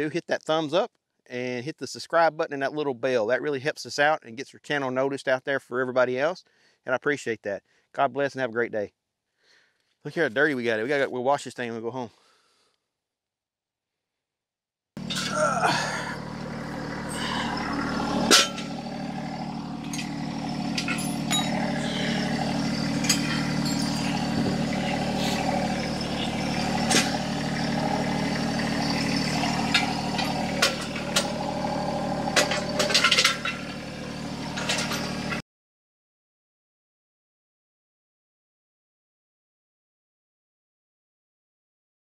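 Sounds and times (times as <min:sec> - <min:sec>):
metal jack stand clanks: 0:15.0 - 0:15.4, 0:17.0 - 0:28.1, 0:29.3 - 0:35.4
diesel engine idling: 0:15.0 - 0:35.4.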